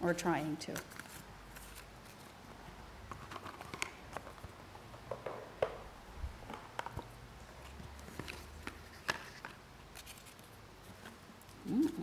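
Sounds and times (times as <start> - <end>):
paper rustling: 7.6 - 11.2.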